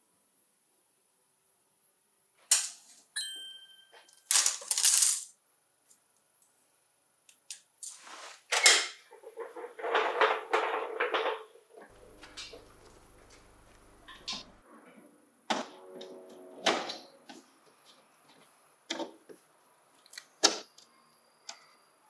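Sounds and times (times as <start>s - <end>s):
metal clattering and rustling: 9.1s - 13.0s.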